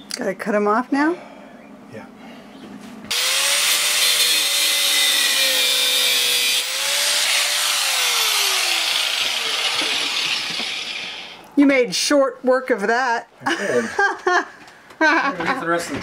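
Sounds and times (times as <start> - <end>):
angle grinder cutting metal: 3.1 - 11.4.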